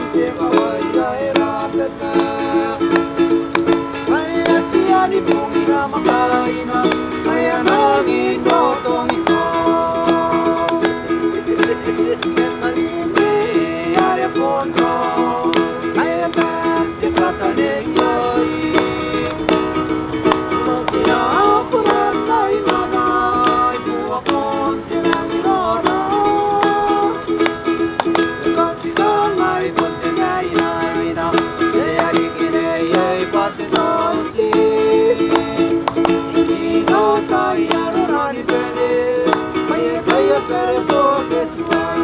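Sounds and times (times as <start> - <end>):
plucked strings music: 0.0 - 42.0.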